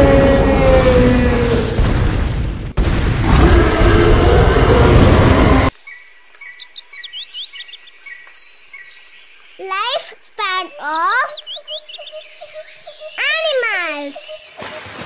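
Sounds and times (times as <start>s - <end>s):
cartoon dinosaur roar: 0.0s - 1.8s, 3.2s - 5.7s
birds chirping: 5.5s - 14.9s.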